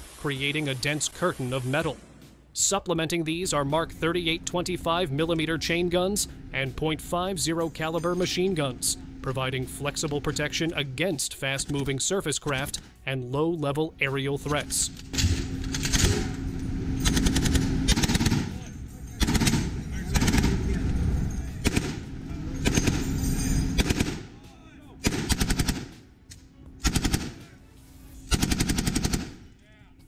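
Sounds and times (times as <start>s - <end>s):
machine gun bursts: 15.1s - 16.4s, 17.0s - 18.6s, 19.2s - 20.7s, 21.6s - 22.0s, 22.6s - 24.3s, 25.0s - 25.9s, 26.8s - 27.4s, 28.3s - 29.4s.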